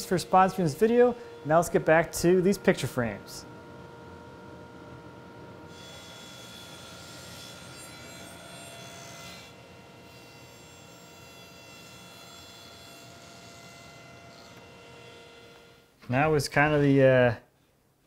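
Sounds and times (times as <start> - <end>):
table saw motor whine: 0.0 - 15.8
saw blade cutting wood: 5.7 - 15.8.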